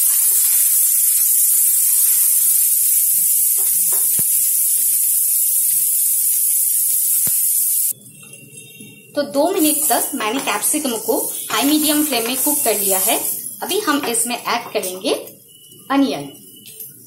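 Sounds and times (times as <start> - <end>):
peppers sizzling in hot oil: 0.0 - 8.0, 9.4 - 15.0.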